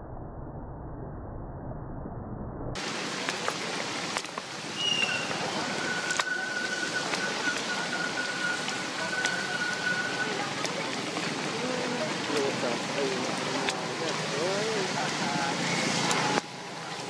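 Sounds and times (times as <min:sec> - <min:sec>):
rain on wet pavement: 0:02.8 - 0:17.0
sharp drip-like ticks: 0:02.8 - 0:17.0
thin high tone: 0:04.8 - 0:10.6.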